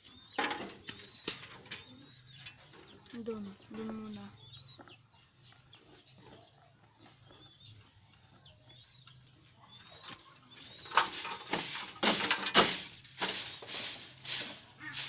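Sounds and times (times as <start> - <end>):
broom sweeping dirt floor: 0.4 - 2.0, 10.5 - 15.0.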